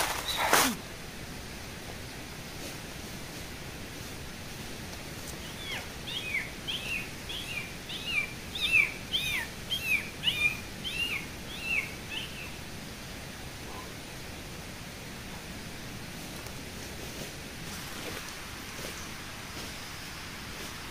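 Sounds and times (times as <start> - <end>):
steady background hiss: 0.0 - 20.9
bird singing whistled notes: 5.4 - 12.6.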